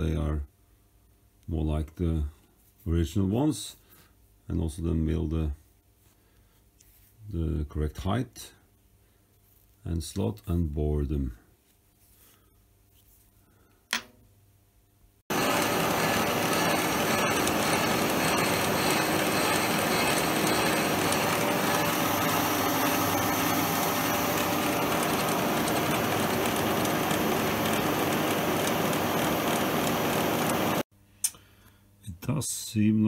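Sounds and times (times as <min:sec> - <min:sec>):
milling machine running: 0:15.3 - 0:30.8.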